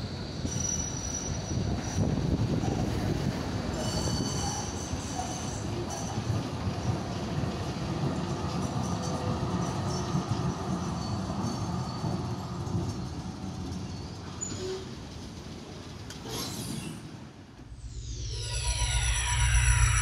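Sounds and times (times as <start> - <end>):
tram wheels rumbling: 0.0 - 16.4, 17.0 - 20.0.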